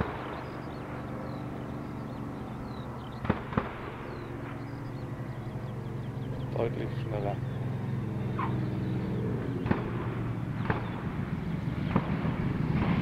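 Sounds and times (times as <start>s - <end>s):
distant aircraft engine drone: 0.0s - 13.0s
sharp cracks: 3.1s - 4.7s, 9.4s - 13.0s.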